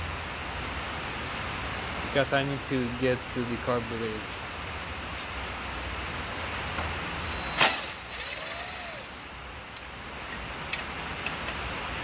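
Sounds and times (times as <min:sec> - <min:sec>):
steady hiss: 0:00.0 - 0:12.0
cordless drill burst: 0:07.5 - 0:09.2.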